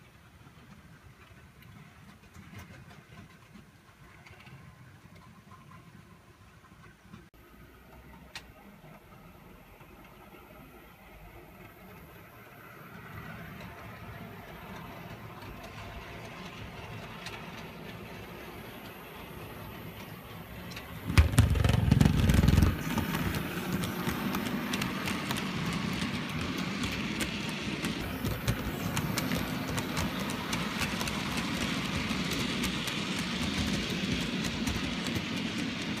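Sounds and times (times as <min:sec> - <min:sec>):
wheels rattling on track: 0:11.8 - 0:36.0.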